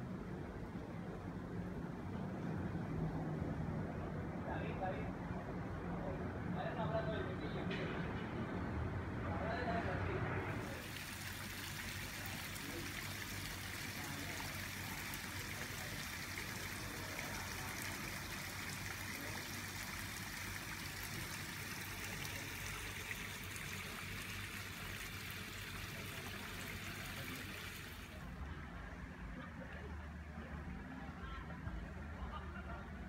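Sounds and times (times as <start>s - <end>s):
water running: 10.6s - 28.2s.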